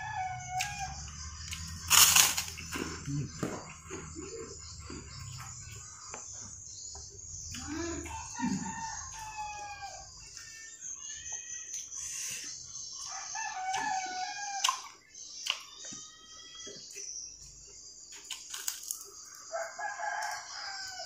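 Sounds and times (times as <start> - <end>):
rooster crowing: 0.0 - 2.4, 7.9 - 10.6, 13.0 - 14.8, 19.2 - 21.0.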